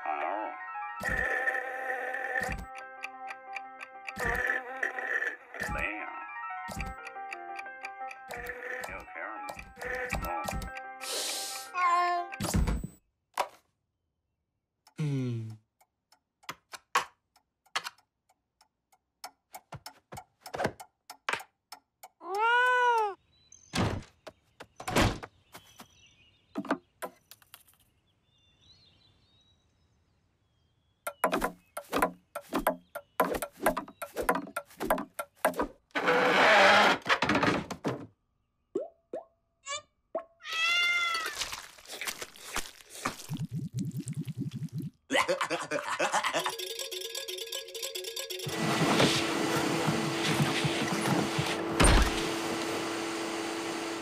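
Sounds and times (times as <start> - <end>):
pendulum clock ticking: 2.3 - 4.7, 6.7 - 10.9, 17.4 - 22.2, 46.0 - 48.5.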